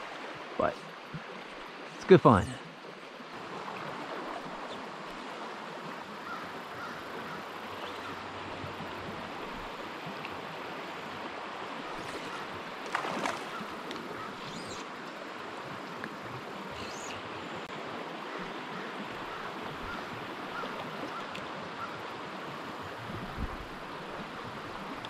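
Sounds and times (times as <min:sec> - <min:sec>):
stream flowing: 0:00.0 - 0:25.0
splash on water: 0:12.0 - 0:14.0.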